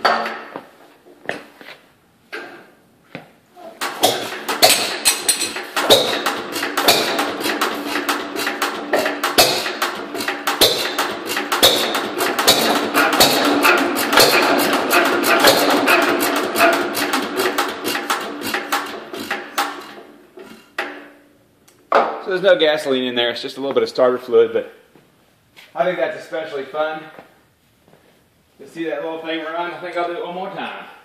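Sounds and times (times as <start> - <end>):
stationary engine clattering: 3.8 - 21.0.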